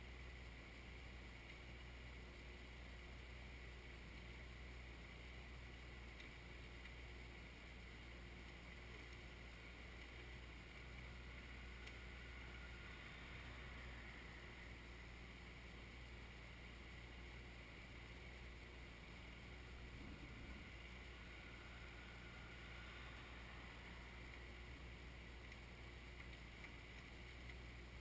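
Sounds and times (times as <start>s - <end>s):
distant tractor engine running: 6.1s - 28.0s.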